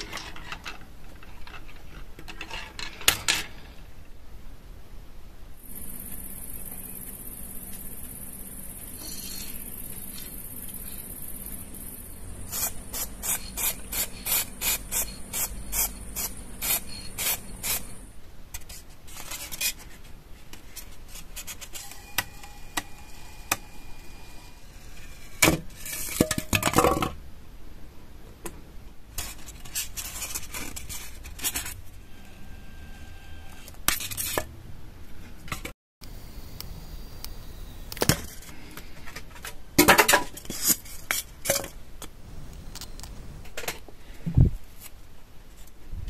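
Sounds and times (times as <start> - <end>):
styrofoam rubbing and scraping: 12.4 - 18.1, 29.2 - 31.8.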